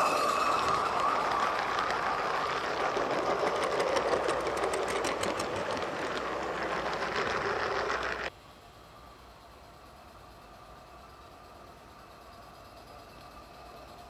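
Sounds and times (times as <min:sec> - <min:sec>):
model train wheels rattling: 0:00.0 - 0:08.3
faint steady background noise: 0:00.9 - 0:14.0.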